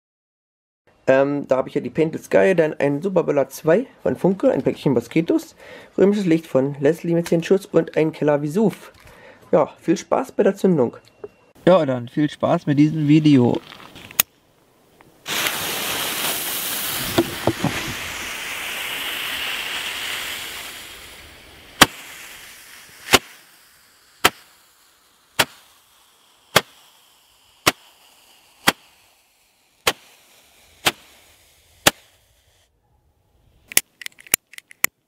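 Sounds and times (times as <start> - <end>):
roman candle shots popping: 15.2 - 32.6
firework fizzing hiss: 15.2 - 32.7.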